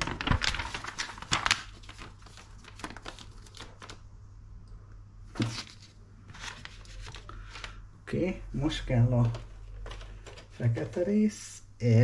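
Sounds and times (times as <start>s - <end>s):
magazine pages rustling: 0.0s - 4.1s, 5.3s - 7.8s, 9.0s - 11.3s.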